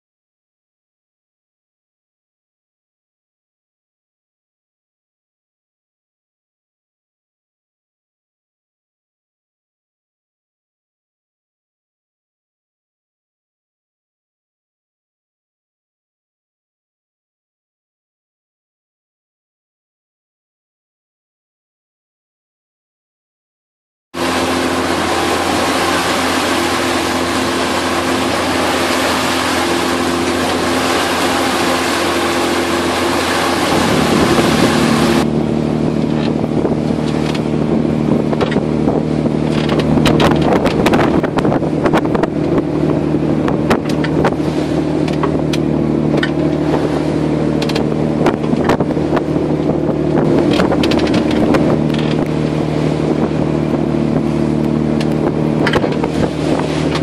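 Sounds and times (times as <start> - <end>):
boat diesel engine drone: 24.2 - 57.0
wind and sea rushing: 24.2 - 57.0
wind gusting on microphone: 24.2 - 57.0.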